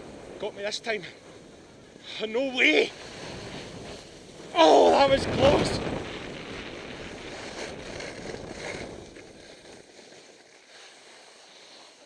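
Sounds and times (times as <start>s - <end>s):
skis hissing over snow: 0.0s - 12.0s
wind on microphone: 3.1s - 9.9s.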